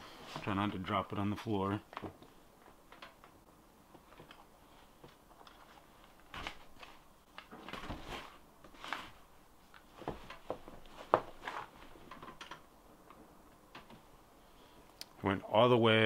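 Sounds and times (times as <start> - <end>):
soft scrapes and small knocks: 1.9 - 14.8
clothing rustling: 3.8 - 12.4.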